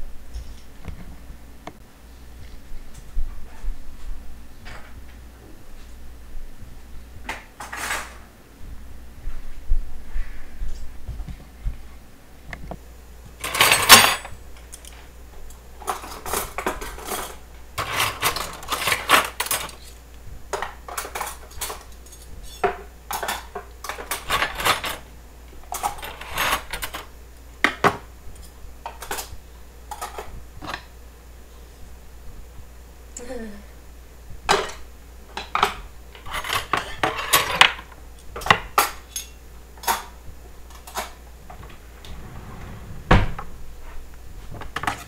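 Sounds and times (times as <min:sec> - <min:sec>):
cutlery clinking in drawer: 0:13.4 - 0:15.0, 0:15.8 - 0:20.0, 0:20.6 - 0:25.0, 0:25.7 - 0:27.1, 0:28.4 - 0:29.3, 0:35.5 - 0:37.8, 0:38.4 - 0:40.1, 0:40.7 - 0:41.2.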